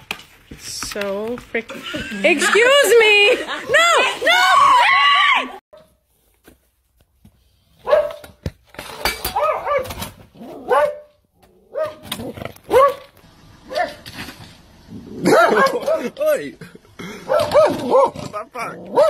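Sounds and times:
dog barking: 7.8 - 8.3, 9.3 - 12.1, 12.7 - 13.1, 13.7 - 14.0, 15.2 - 16.2, 17.2 - 18.2.

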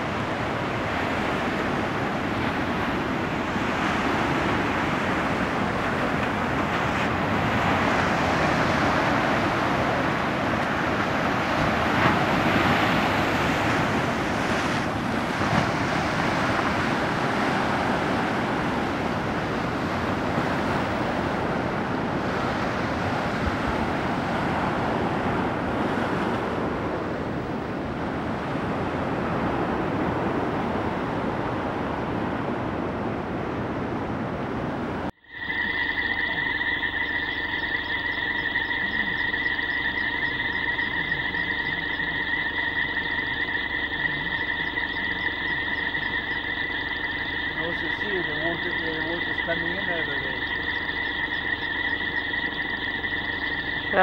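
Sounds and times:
surf breaking on beach: 0.0 - 33.8.

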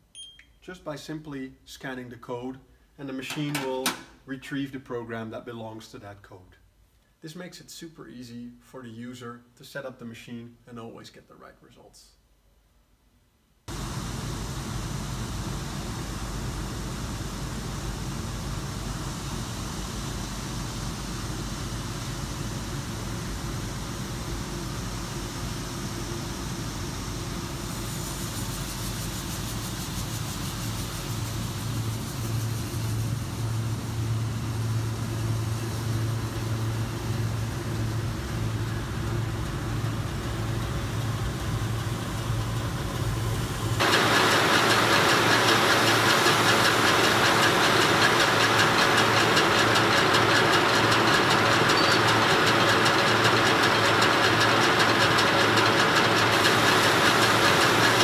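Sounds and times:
machine humming: 13.7 - 58.0
loud machine rushing noise: 17.6 - 58.0.

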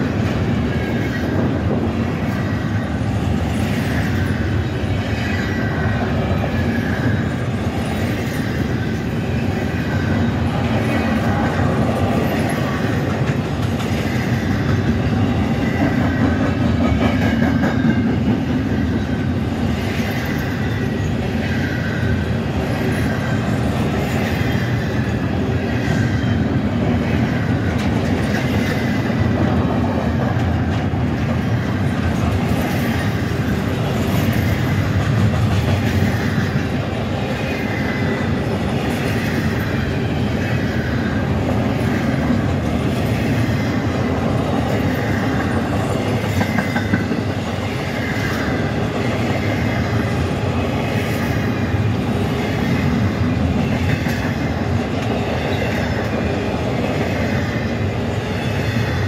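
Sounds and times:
freight train rumble: 0.0 - 59.0
wheels clacking over rail joints: 22.8 - 40.2.

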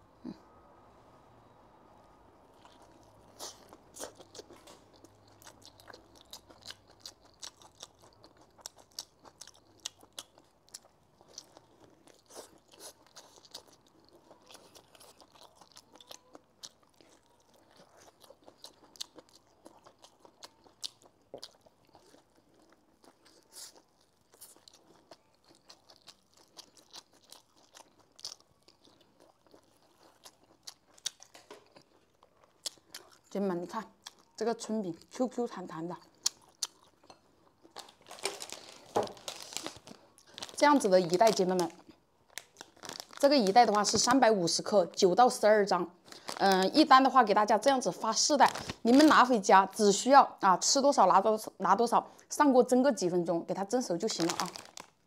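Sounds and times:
crunchy chewing: 2.5 - 33.4, 34.0 - 34.4, 36.0 - 44.1, 54.2 - 55.0.

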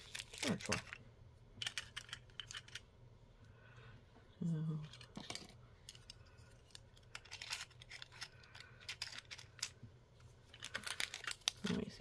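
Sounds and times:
plastic pieces clicking and tapping: 1.6 - 2.8, 6.9 - 9.8.

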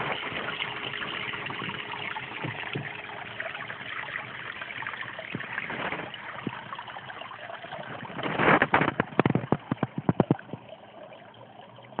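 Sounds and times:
water trickling into pond: 0.0 - 12.0
knocks and thumps: 2.4 - 3.0, 8.0 - 10.6.

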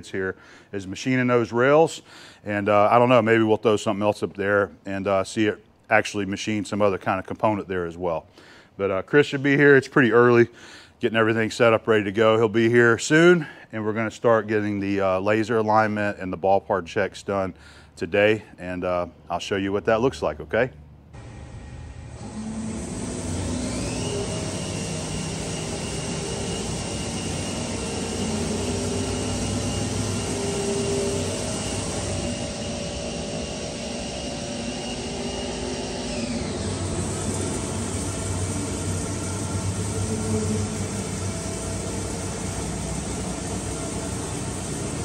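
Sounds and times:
high whine: 21.1 - 45.0
machinery noise: 21.2 - 45.0.

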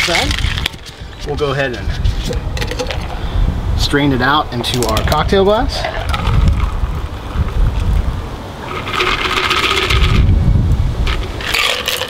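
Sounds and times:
steady low rumble: 0.0 - 8.6, 9.9 - 11.4
liquid pouring into glass: 5.8 - 8.1
ice shifting in shaker: 8.6 - 10.3, 11.1 - 12.0
shaker rattle: 8.7 - 10.3.

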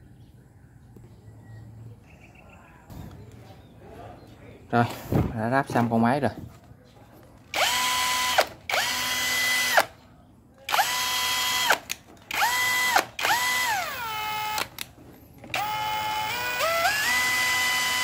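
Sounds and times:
power drill motor whining: 7.5 - 9.9, 10.7 - 18.0.

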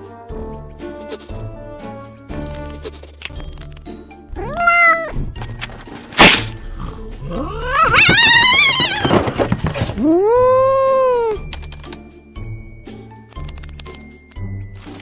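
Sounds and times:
cartoon cat yowling in pain: 4.4 - 5.2, 7.4 - 9.1, 10.0 - 11.4
drawn-out cry: 7.3 - 9.1.

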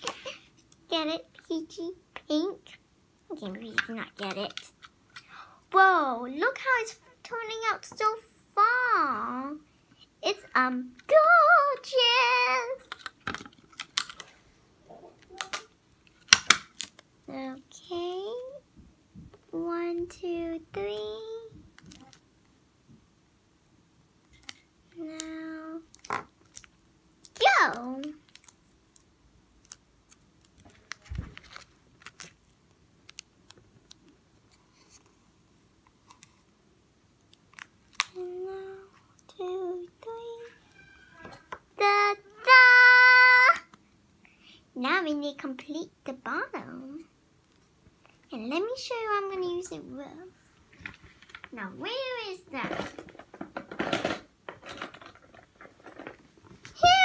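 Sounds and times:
child singing: 10.6 - 12.8, 38.2 - 40.6
paper crinkling and clicking: 28.0 - 34.1.

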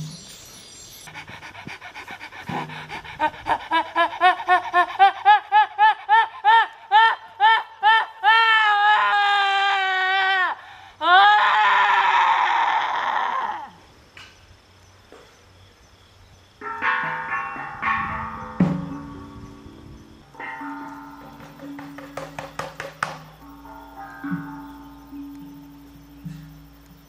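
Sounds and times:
high voice crying: 3.1 - 13.8.

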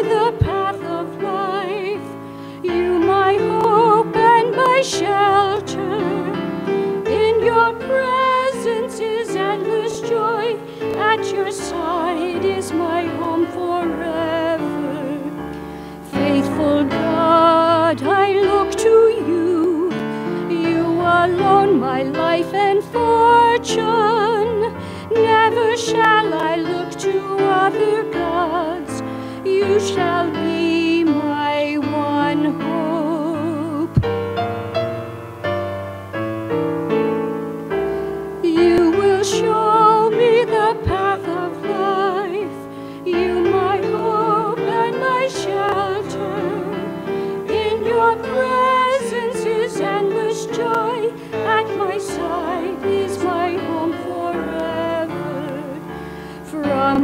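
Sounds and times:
woman singing with vibrato: 0.0 - 34.4, 38.4 - 57.0
digital piano: 0.0 - 57.0.

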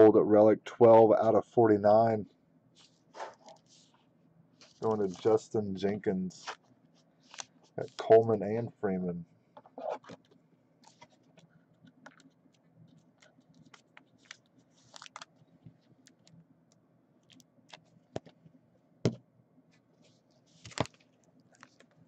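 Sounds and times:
foil card pack crinkling: 4.6 - 5.4, 7.2 - 8.1, 13.1 - 15.4, 20.5 - 22.0.

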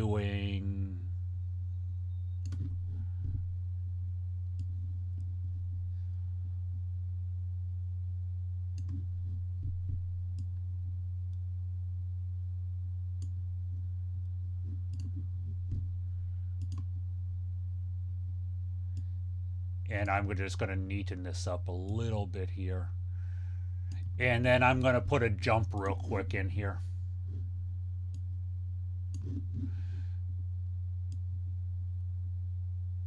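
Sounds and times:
low electrical hum: 0.0 - 33.0
computer mouse clicks: 2.2 - 2.8, 8.8 - 9.1, 14.7 - 15.8, 16.6 - 16.9, 29.1 - 29.7.

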